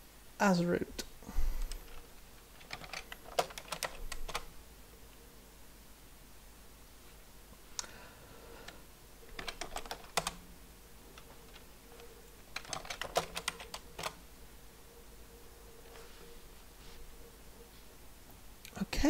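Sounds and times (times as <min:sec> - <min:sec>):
typing on computer keyboard: 0:01.6 - 0:04.5, 0:08.6 - 0:10.4, 0:12.5 - 0:14.2.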